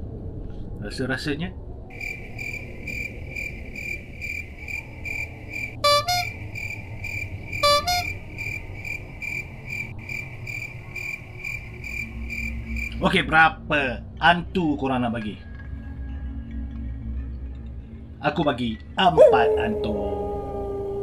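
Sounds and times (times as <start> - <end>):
crickets chirping: 1.9 - 13.2
short horn-like honks: 5.8 - 6.4, 7.6 - 8.2.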